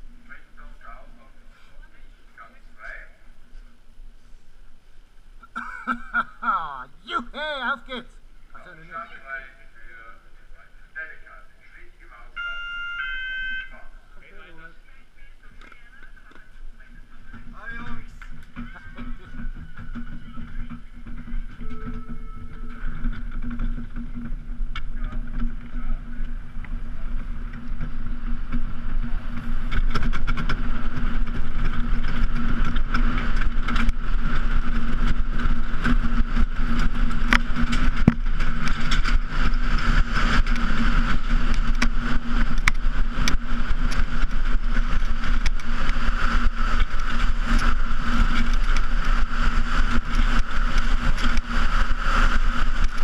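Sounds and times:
constant hum: 0.0 - 53.0
sled knocking and rattling: 17.1 - 53.0
sled runners on ice: 17.2 - 53.0.

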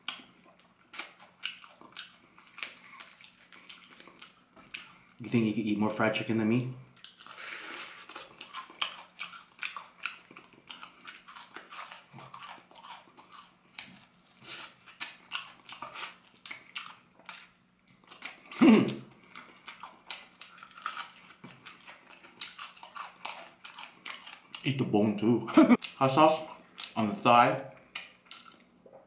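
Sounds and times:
crunchy chewing: 0.0 - 5.2, 6.9 - 18.6, 19.2 - 24.8.

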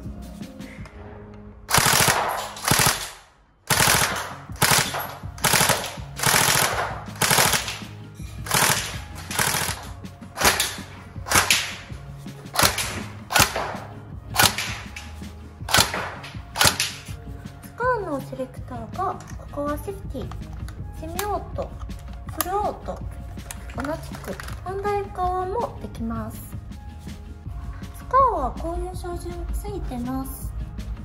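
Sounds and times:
airsoft gun firing bursts: 1.7 - 15.0, 15.7 - 17.1.

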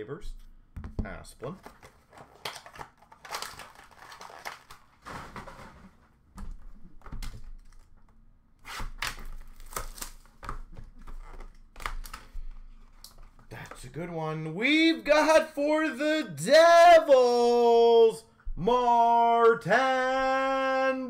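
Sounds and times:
cardboard knocks: 0.8 - 1.2
packaging clicks and rustles: 1.5 - 5.7.

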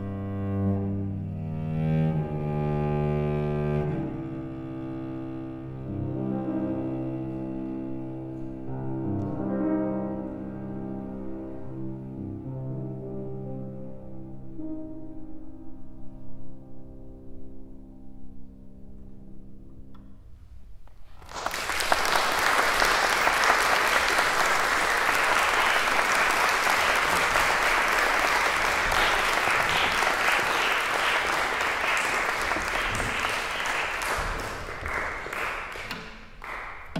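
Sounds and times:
cello and piano chord: 0.0 - 20.4, 24.0 - 36.7
audience applause: 21.2 - 36.9.

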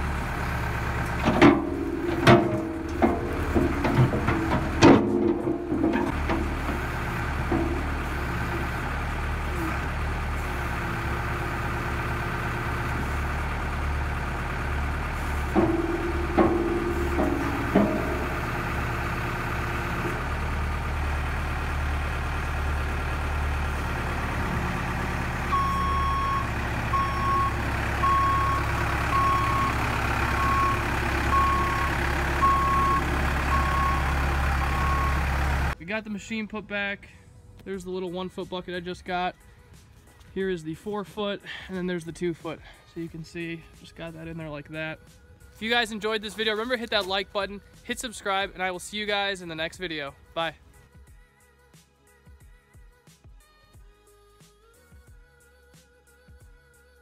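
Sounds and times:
diesel engine running: 0.0 - 38.2
metal knocks: 1.2 - 9.1, 14.5 - 21.1
reversing alarm beeping: 25.5 - 35.3.

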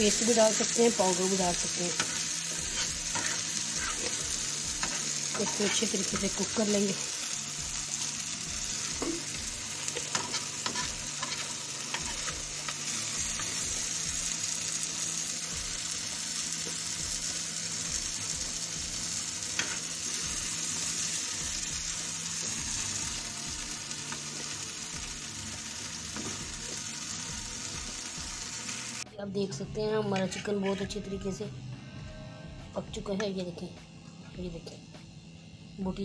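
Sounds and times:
chicken sizzling in frying pan: 0.0 - 29.0
spatula scraping pan: 1.9 - 4.2, 4.8 - 6.4, 9.9 - 12.8, 30.1 - 31.0.

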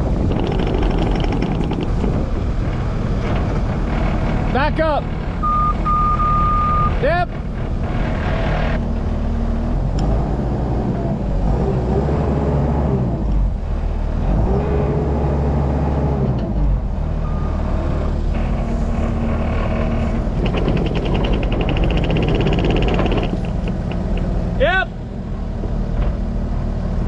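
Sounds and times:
fast rattling: 0.0 - 3.6, 19.1 - 24.6
farm vehicle engine running: 0.0 - 27.0.

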